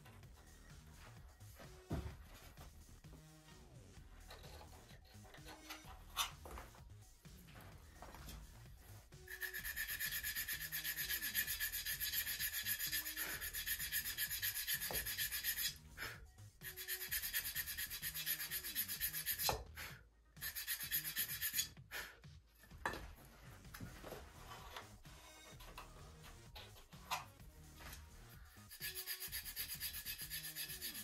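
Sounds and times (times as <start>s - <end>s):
wood sanded by hand: 9.1s - 19.7s, 20.4s - 21.7s, 28.5s - 31.0s.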